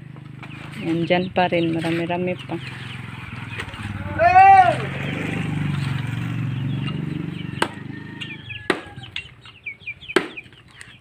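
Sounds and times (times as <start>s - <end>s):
birds chirping: 0.0s - 11.0s
firewood chopping: 7.6s - 7.8s, 8.6s - 9.4s, 10.1s - 10.8s.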